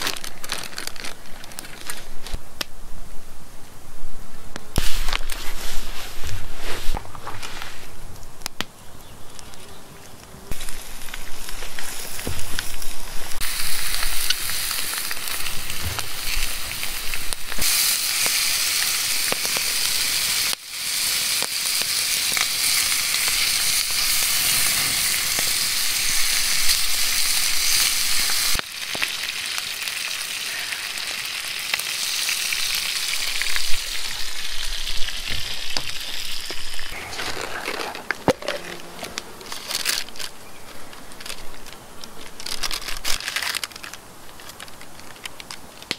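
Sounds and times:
sausages sizzling in pan: 10.5 - 37.0.

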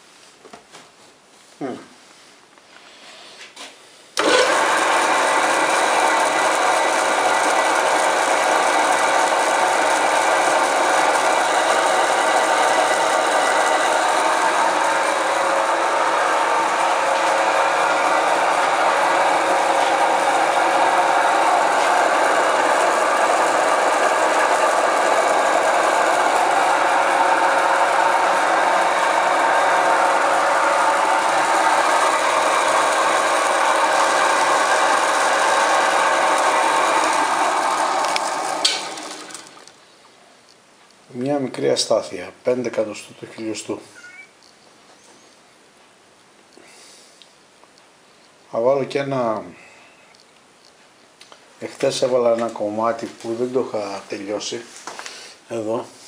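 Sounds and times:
metal lathe humming and whining: 4.2 - 39.7.

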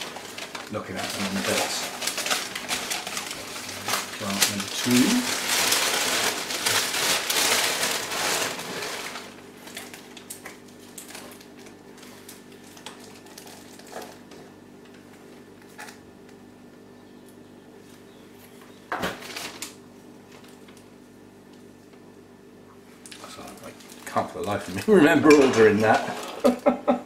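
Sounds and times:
plastic and newspaper crinkling: 0.0 - 16.0, 19.0 - 21.0, 23.0 - 26.6.

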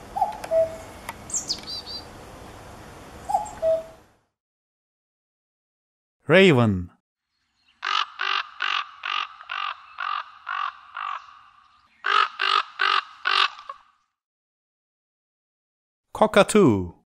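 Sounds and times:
raven cawing: 7.7 - 14.0.

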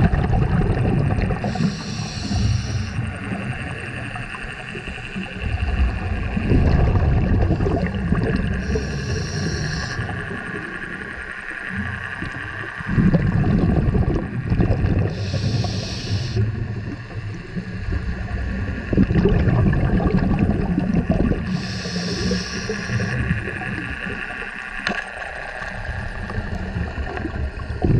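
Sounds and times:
bubbling exhaust underwater: 0.0 - 27.9
scuba regulator hissing inhales: 1.4 - 3.2, 8.5 - 10.5, 15.1 - 16.6, 21.4 - 23.4.

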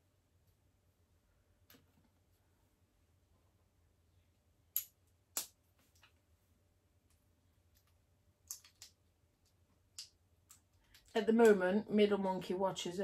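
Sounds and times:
plastic bricks clicking together: 4.7 - 6.1, 7.7 - 11.6.

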